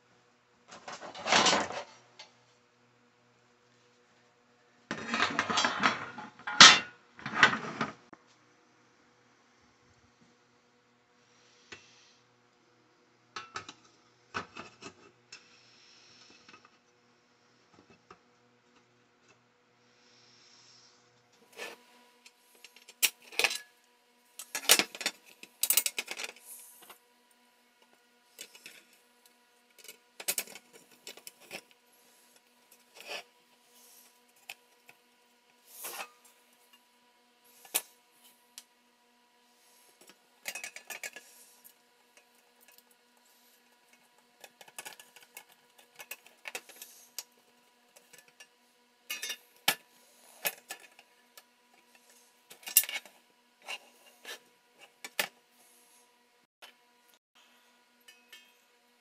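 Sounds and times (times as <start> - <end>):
faint steady hum: 0.0 - 59.0
small parts clicking and tapping: 24.4 - 27.0, 27.8 - 31.8, 43.6 - 49.8.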